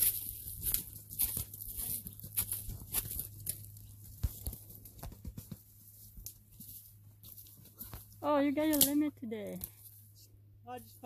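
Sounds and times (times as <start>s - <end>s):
footsteps crunching dry leaves: 0.0s - 8.1s.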